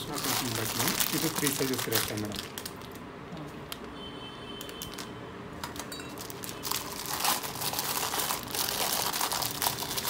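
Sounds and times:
plastic wrapping crinkling: 0:00.0 - 0:03.0, 0:04.6 - 0:10.0.

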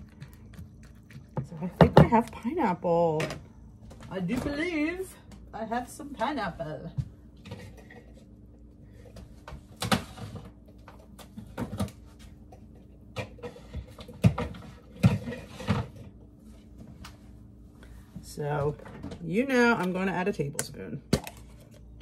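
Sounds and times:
faint steady hum: 0:00.0 - 0:22.0
kitchen items knocking and clattering: 0:01.2 - 0:02.5, 0:09.1 - 0:16.2.

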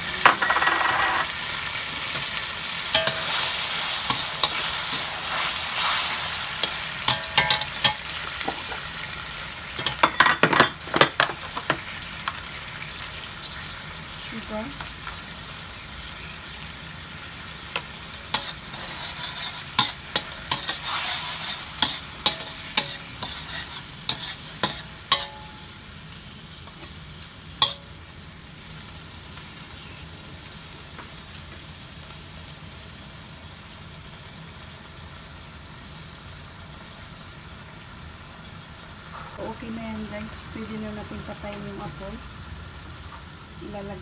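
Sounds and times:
sauce sizzling: 0:00.0 - 0:44.0
metal spatula scraping a wok: 0:00.2 - 0:08.8, 0:18.3 - 0:25.7.

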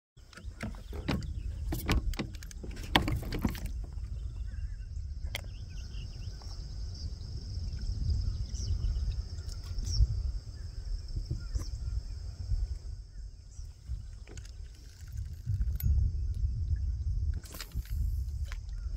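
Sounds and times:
knocks and clicks: 0:00.2 - 0:04.0
wind rumbling on microphone: 0:00.2 - 0:18.9.

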